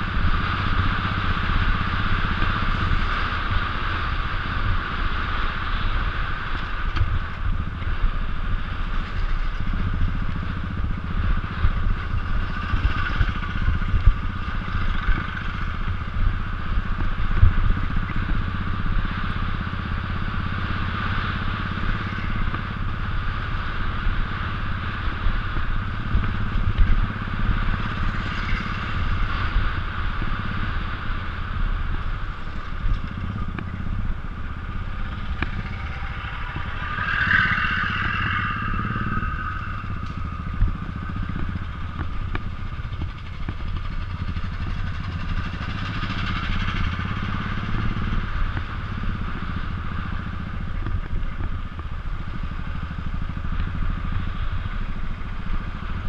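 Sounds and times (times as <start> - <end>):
motorcycle engine running: 0.0 - 56.0
clatter and knocks from rough road: 8.9 - 10.4, 11.6 - 15.8, 35.3 - 48.7.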